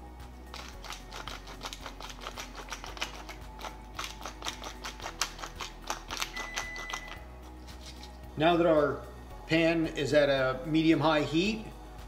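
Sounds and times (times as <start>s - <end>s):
pepper mill grinding: 0.4s - 8.2s.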